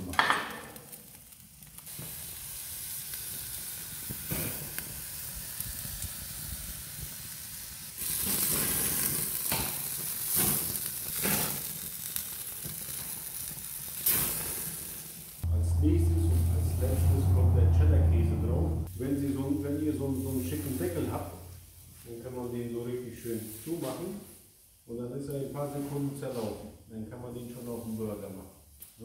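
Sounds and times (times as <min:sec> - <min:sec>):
burger sizzling on a grill: 0:00.8 - 0:15.5.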